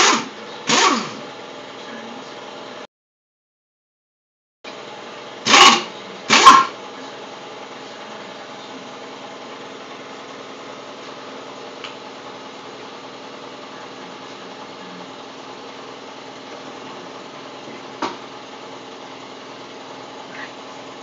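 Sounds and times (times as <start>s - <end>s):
pneumatic impact wrench rattling: 0.0s - 1.2s, 5.5s - 6.7s
steady hum: 0.0s - 2.9s, 4.7s - 21.0s.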